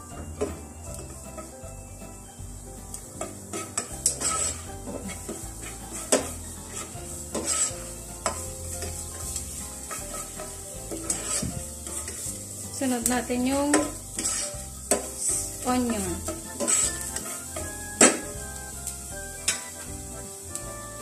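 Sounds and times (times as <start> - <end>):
garlic sizzling in hot oil: 0.0 - 21.0
spoon scraping and knocking pot: 3.2 - 12.4, 13.6 - 18.4.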